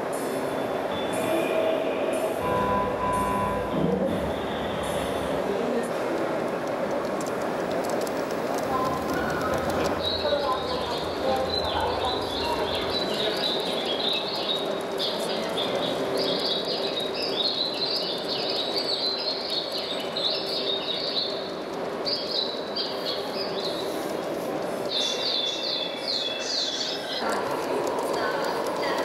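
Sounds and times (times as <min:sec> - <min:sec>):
model trains rumbling: 0:02.1 - 0:29.0
birds chirping: 0:08.1 - 0:29.0.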